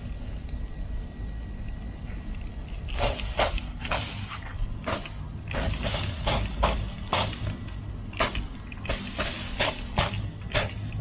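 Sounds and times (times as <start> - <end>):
spray bottle squirting: 2.9 - 11.0.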